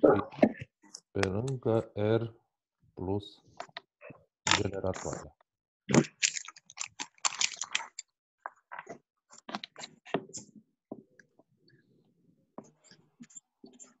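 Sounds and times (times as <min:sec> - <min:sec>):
handling clicks and rustles: 0:06.0 - 0:08.0.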